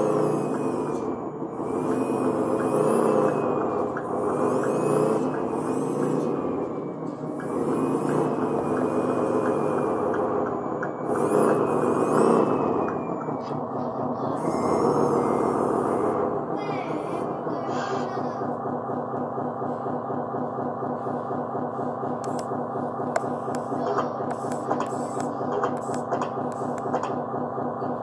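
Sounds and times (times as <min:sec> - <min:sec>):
toy electric motor and gears whirring: 0:00.0 - 0:06.4, 0:11.0 - 0:18.5, 0:23.2 - 0:27.2.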